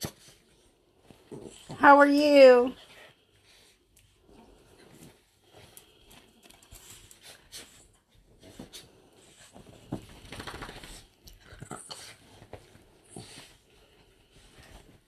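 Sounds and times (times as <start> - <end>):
clicks and rustles: 9.5 - 11.7.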